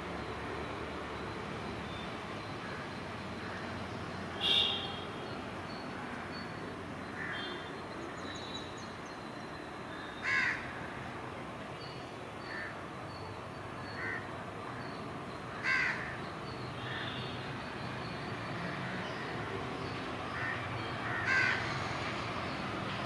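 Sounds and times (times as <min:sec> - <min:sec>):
crow cawing: 0:07.2 - 0:07.6, 0:10.2 - 0:10.7, 0:14.0 - 0:14.2, 0:15.5 - 0:16.2, 0:20.4 - 0:21.8.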